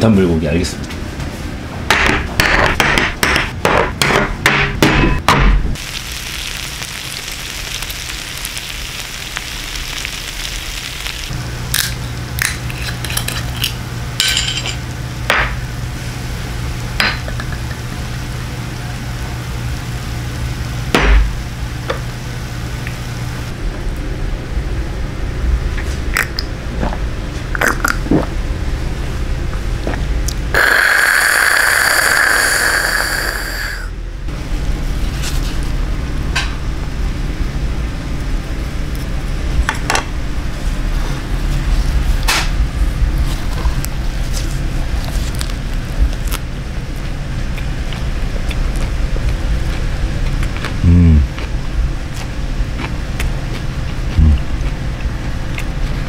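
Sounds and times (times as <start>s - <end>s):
meat sizzling on hot plate: 5.8s - 11.9s, 30.6s - 33.9s.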